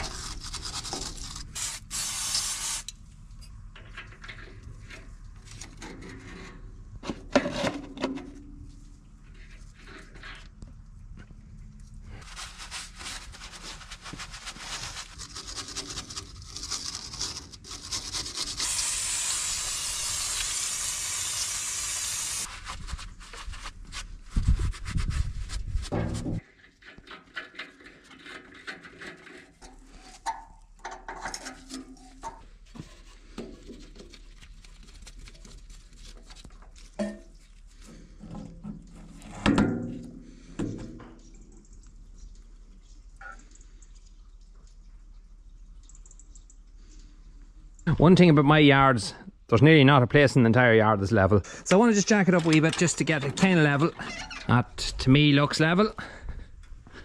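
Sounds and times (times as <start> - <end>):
aerosol spray hiss: 1.6 - 2.9
rag wiping metal casing: 12.2 - 26.4.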